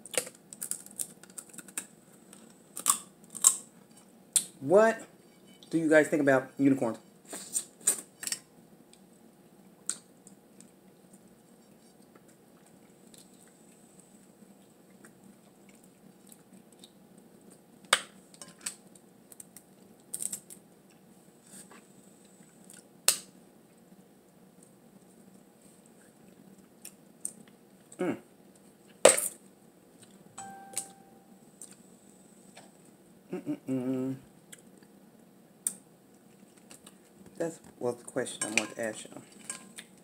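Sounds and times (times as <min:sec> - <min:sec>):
crab shell cracking: 0:00.0 - 0:03.7, 0:17.9 - 0:20.6
chewing: 0:14.5 - 0:17.6.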